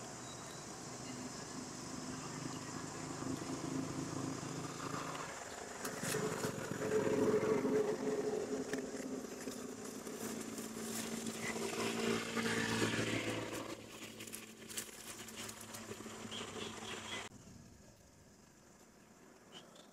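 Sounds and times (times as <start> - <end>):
engine running: 0.0 - 17.3
dry leaves crackling: 5.8 - 17.2.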